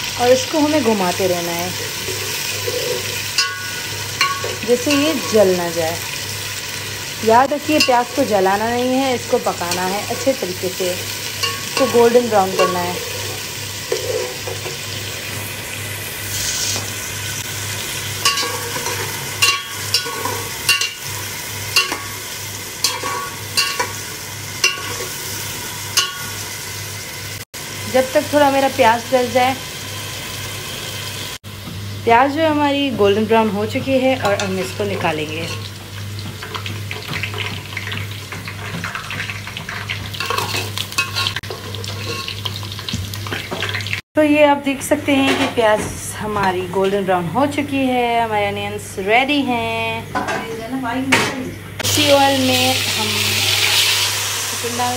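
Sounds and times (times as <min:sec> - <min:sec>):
onions sizzling in oil: 0:00.0 - 0:44.5, 0:51.8 - 0:54.9
spatula scraping a pot: 0:01.8 - 0:05.4, 0:12.6 - 0:14.8, 0:40.2 - 0:42.8.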